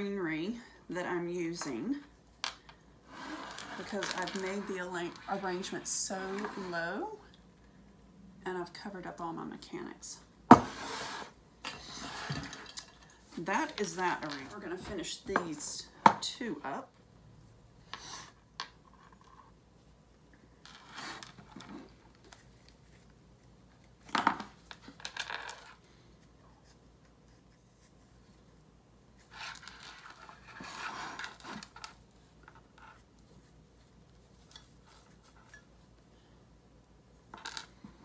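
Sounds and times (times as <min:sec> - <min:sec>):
flower stems scraping and rustling: 0:03.1 - 0:07.2, 0:29.2 - 0:35.6.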